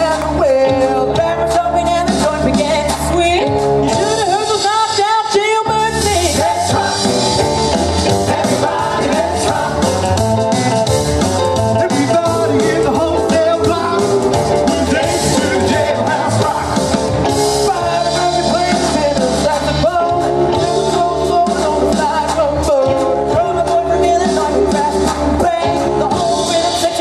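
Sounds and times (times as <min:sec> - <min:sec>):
band accompaniment over loudspeakers: 0:00.0 - 0:27.0
male group singing rock and roll: 0:00.0 - 0:27.0.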